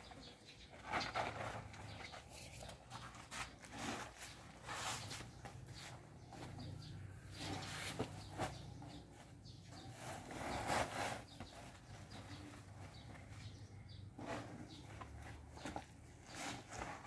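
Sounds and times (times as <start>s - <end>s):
sack rustling and scraping: 3.2s - 5.4s, 9.7s - 13.1s, 15.2s - 17.0s.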